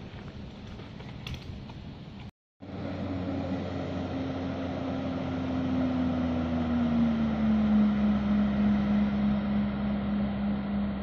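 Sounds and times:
jet ski engine droning: 0:02.6 - 0:11.0.

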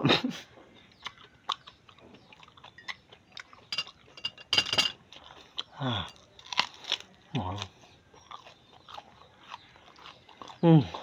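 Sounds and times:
chewing mouth smacks: 0:01.0 - 0:04.1.

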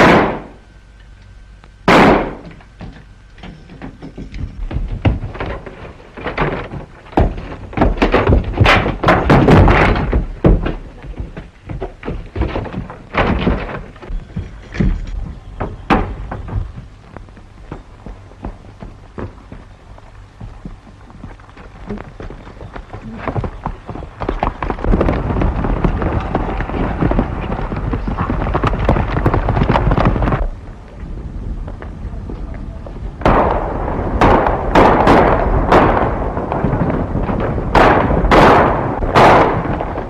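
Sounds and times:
gunshots: 0:00.0 - 0:00.6, 0:01.9 - 0:02.5, 0:33.2 - 0:40.0
horses galloping: 0:02.5 - 0:40.0.

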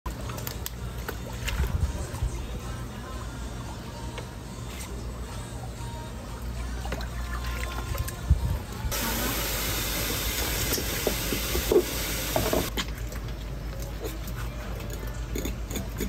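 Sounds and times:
water running from a tap: 0:08.9 - 0:12.7.

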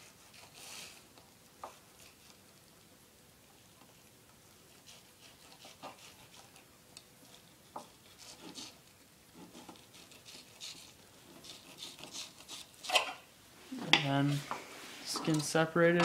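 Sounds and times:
knife scraping fish skin: 0:00.0 - 0:01.0, 0:04.7 - 0:06.7, 0:07.3 - 0:08.8, 0:09.4 - 0:13.3.

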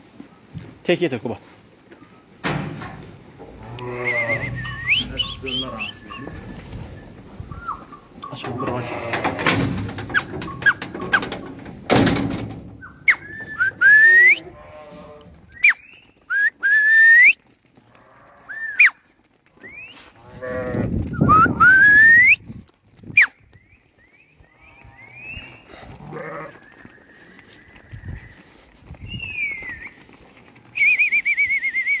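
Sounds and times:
sheep bleating: 0:03.6 - 0:04.6, 0:08.6 - 0:09.5, 0:14.2 - 0:15.4, 0:20.2 - 0:21.0, 0:25.8 - 0:26.6
person whistling loudly: 0:13.1 - 0:14.4, 0:15.6 - 0:17.4, 0:21.2 - 0:22.4, 0:30.8 - 0:32.0.

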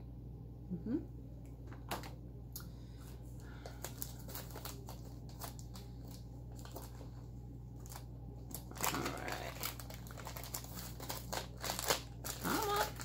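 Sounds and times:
packaging crinkling and rustling: 0:03.6 - 0:13.0.

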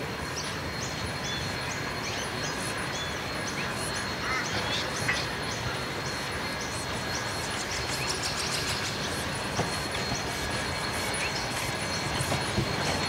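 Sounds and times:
steam train running: 0:00.0 - 0:13.0.

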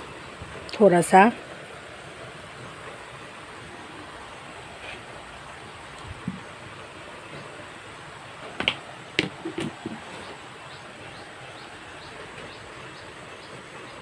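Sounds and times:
wok hissing on stove: 0:00.0 - 0:09.2.

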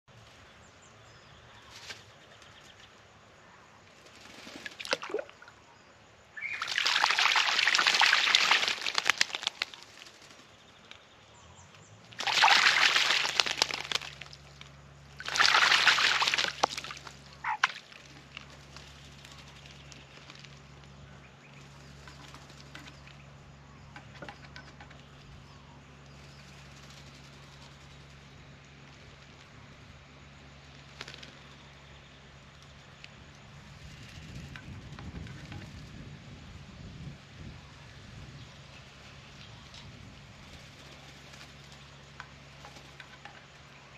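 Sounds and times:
bird splashing water: 0:04.4 - 0:05.6, 0:06.4 - 0:10.4, 0:12.1 - 0:20.6.

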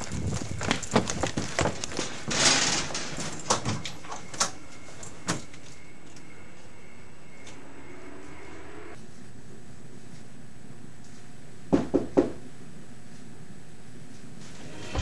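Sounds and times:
quick footsteps: 0:00.0 - 0:05.8
screen door opening: 0:01.4 - 0:05.6.

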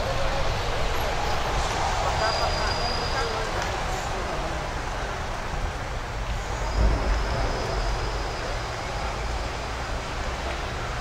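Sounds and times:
traffic road noise: 0:00.0 - 0:11.0
low rumble: 0:06.8 - 0:09.0.

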